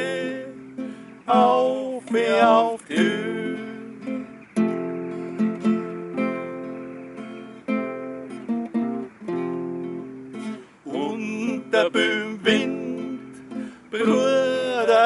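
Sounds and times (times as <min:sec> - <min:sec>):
men singing: 0:00.0 - 0:04.3, 0:10.9 - 0:15.0
acoustic guitars strumming chords: 0:00.0 - 0:15.0.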